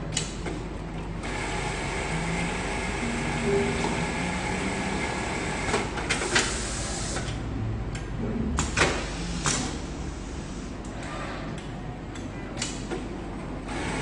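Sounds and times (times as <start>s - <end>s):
steady machine hum: 0.0s - 12.5s
machine clacking and hissing: 5.1s - 7.4s, 8.6s - 11.2s.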